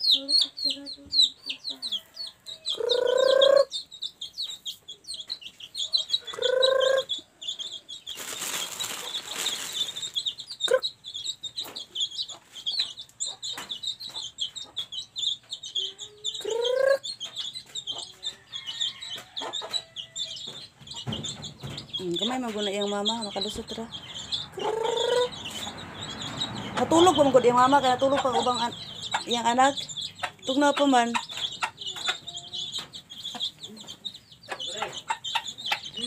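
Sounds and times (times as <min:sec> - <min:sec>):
hen calling: 0:00.0 - 0:12.4, 0:22.0 - 0:36.0
chicks peeping: 0:00.0 - 0:36.0
rustling hiss: 0:08.1 - 0:10.3.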